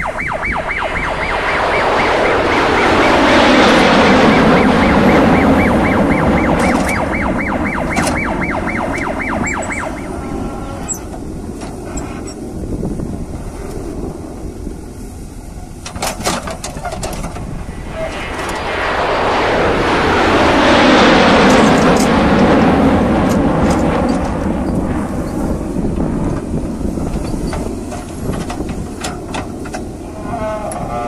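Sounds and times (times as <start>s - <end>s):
fast warbling siren tone: 0.0s - 11.1s
diesel engine under load: 2.3s - 18.6s, 21.4s - 31.0s.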